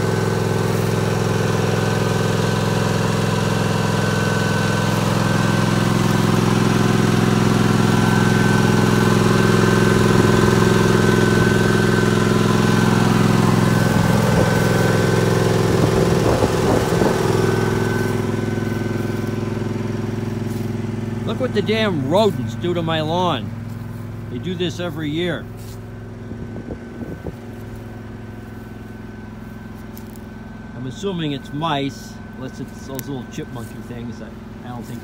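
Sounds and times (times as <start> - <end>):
lawn tractor engine running: 0.0 - 35.0
light crunching: 25.4 - 26.0, 27.3 - 30.4.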